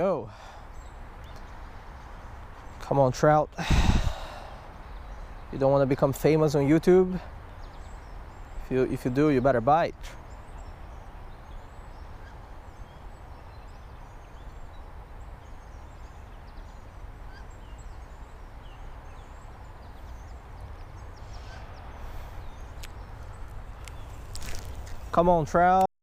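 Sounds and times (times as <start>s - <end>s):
birds chirping: 0.0s - 25.9s
brief rustle: 22.8s - 25.1s.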